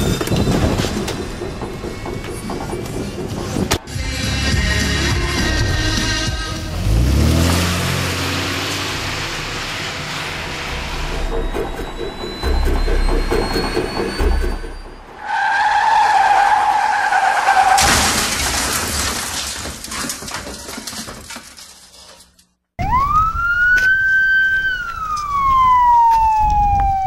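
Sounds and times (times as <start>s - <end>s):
car engine revving hard: 6.7s - 11.5s
tyres screeching: 6.8s - 18.0s
siren wailing: 9.3s - 17.6s, 22.8s - 27.0s
loud crash: 17.5s - 21.6s.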